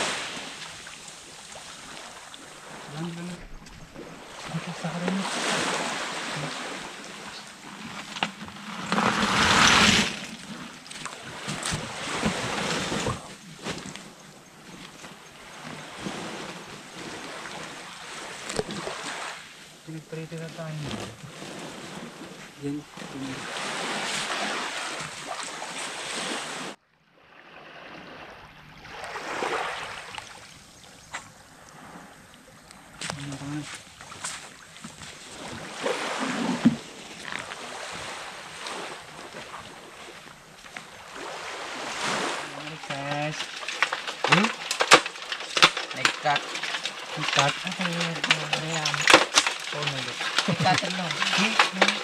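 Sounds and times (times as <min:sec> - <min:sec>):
small waves washing on beach: 0:00.0 - 0:52.0
hermit crabs clattering into sack: 0:42.6 - 0:52.0
plastic sack rustling: 0:42.6 - 0:52.0.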